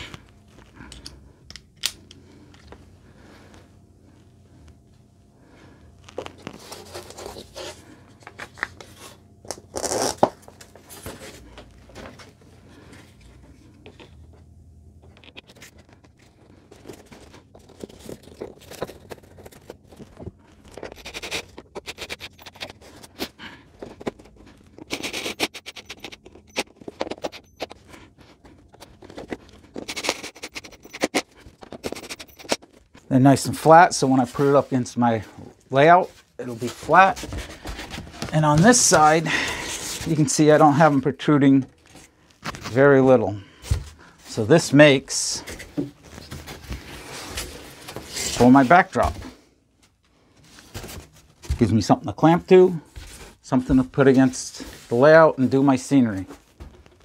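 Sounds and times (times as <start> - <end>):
hands handling screws and board: 16.7 - 32.9.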